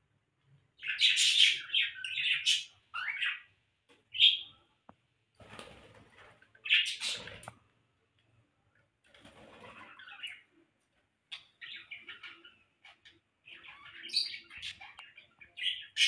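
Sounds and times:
parrots chirping and calling: 0:00.8 - 0:03.5, 0:06.6 - 0:07.5, 0:09.6 - 0:10.5, 0:11.3 - 0:16.0.

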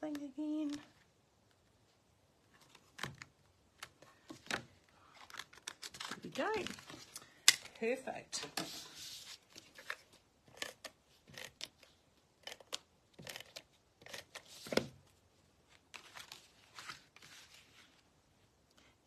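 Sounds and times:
paper scraping and rustling: 0:08.4 - 0:10.0, 0:15.8 - 0:18.0.

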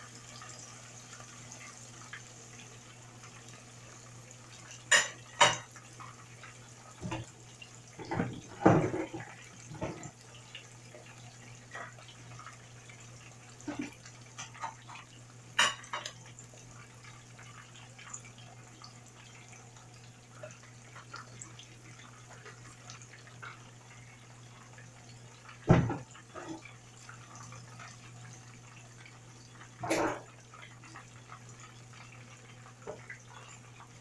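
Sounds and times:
fish sizzling in hot oil: 0:00.0 - 0:34.0
knocks of pan or utensil: 0:25.7 - 0:26.1.

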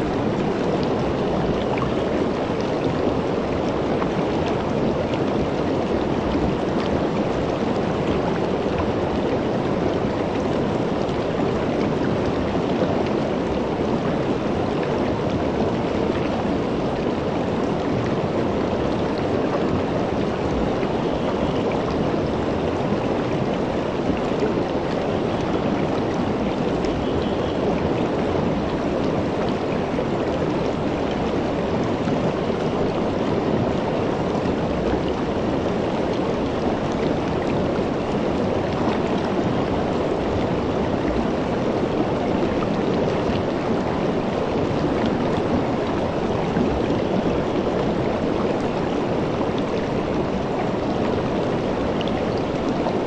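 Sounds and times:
river flowing over rocks: 0:00.0 - 0:53.0.

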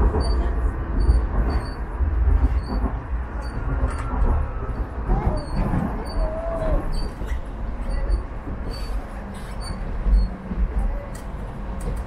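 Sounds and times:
tram wheels rumbling on rail: 0:00.0 - 0:12.0.

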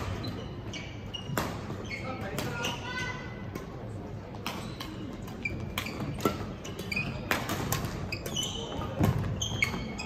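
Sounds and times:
shoes squeaking on court floor: 0:00.0 - 0:03.3, 0:04.3 - 0:10.0
racket hitting shuttlecock: 0:04.4 - 0:08.3.

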